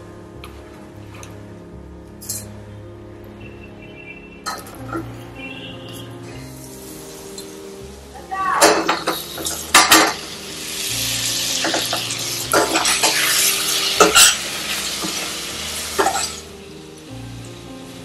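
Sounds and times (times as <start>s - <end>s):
food sizzling: 4.4s - 18.0s.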